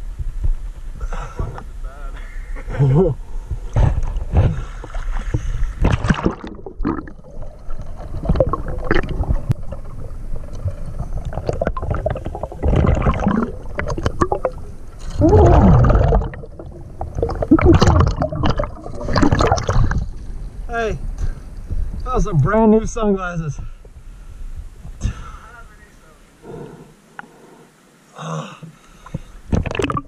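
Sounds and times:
underwater river gurgling: 0:03.2 - 0:20.7, 0:29.0 - 0:30.0
surges of bubbling: 0:03.8 - 0:20.4, 0:29.5 - 0:30.0.

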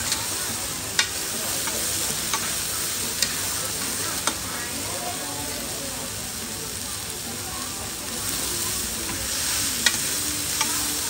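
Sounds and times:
utensils clacking against pan: 0:00.0 - 0:04.4, 0:08.9 - 0:11.0
food sizzling in oil: 0:00.0 - 0:11.0.

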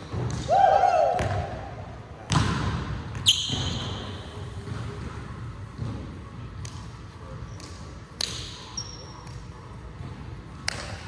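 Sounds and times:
short high shoe squeak: 0:03.2 - 0:04.2.

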